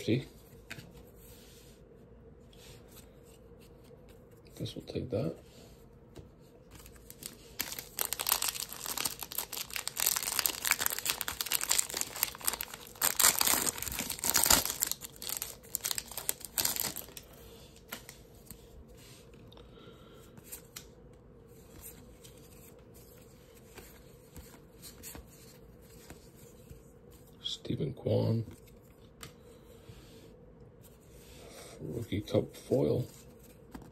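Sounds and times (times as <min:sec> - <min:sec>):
paper wrapper tearing and crinkling: 0:06.8 - 0:17.2.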